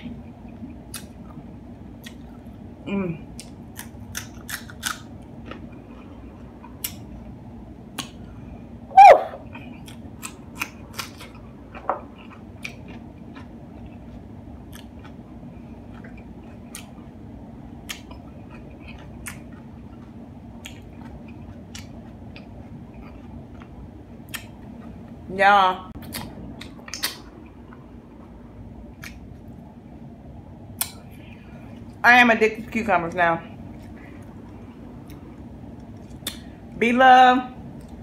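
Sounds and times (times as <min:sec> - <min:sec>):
crunchy chewing: 0:03.3 - 0:07.1, 0:09.4 - 0:17.1, 0:17.8 - 0:25.0.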